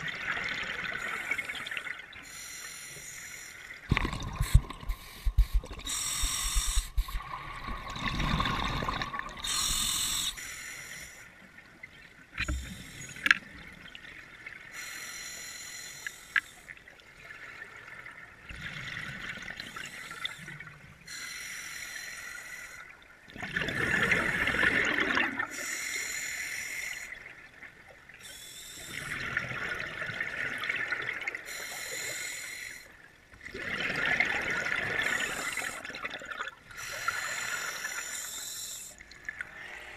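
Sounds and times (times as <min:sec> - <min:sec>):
bubbling exhalations: 0:03.9 - 0:10.3
hissing regulator inhalations: 0:04.4 - 0:07.3, 0:09.4 - 0:11.3, 0:28.2 - 0:29.1, 0:31.5 - 0:32.9, 0:36.8 - 0:39.0.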